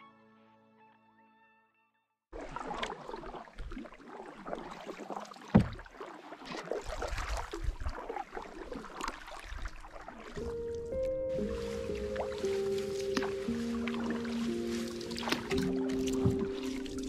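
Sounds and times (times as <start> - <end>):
music: 0.0 - 2.2, 10.4 - 17.0
paddles splashing in water: 2.4 - 17.0.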